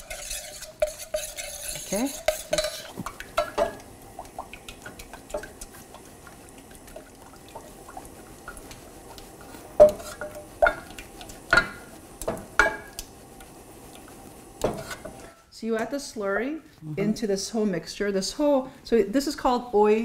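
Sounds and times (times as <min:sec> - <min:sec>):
wooden spoon stirring thick paste: 0:00.0 - 0:03.6, 0:04.2 - 0:15.4
spoon knocking against pan: 0:02.2 - 0:03.8, 0:09.8 - 0:13.0.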